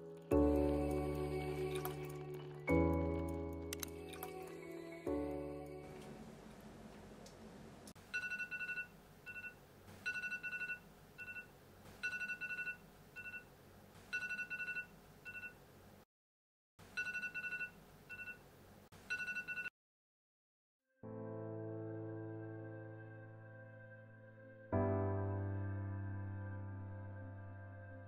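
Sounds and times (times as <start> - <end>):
smartphone alarm beeping: 8.1 - 13.5, 14.2 - 15.6, 17.0 - 18.4, 19.1 - 19.7.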